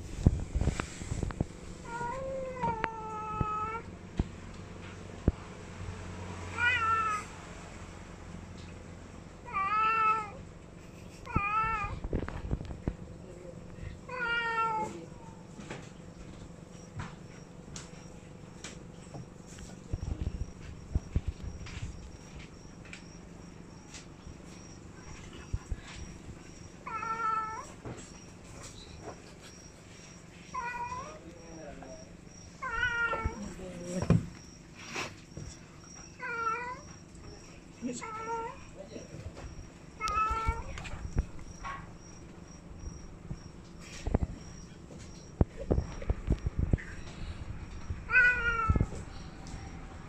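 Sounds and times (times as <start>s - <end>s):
cat meowing: 1.8s - 3.9s, 6.5s - 7.3s, 9.5s - 10.4s, 11.3s - 12.0s, 14.1s - 15.1s, 26.8s - 27.8s, 30.5s - 31.2s, 32.6s - 33.4s, 36.2s - 36.9s, 40.0s - 40.8s, 48.0s - 49.0s.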